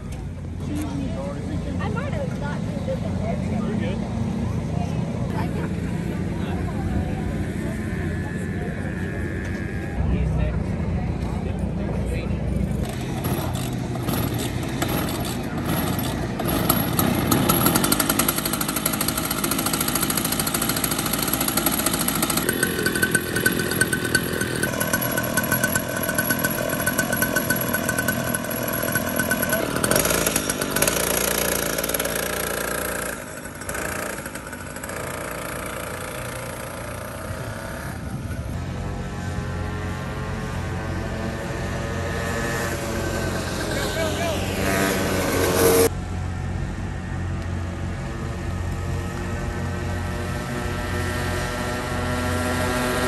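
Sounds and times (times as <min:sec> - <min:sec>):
small two-stroke engine revving: 0:00.2 - 0:10.2, 0:12.5 - 0:53.0.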